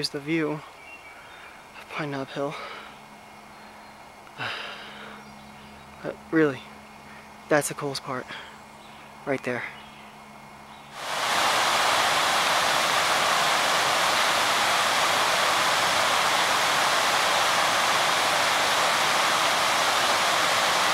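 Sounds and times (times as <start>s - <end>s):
stream rushing over rocks: 11.0s - 20.9s.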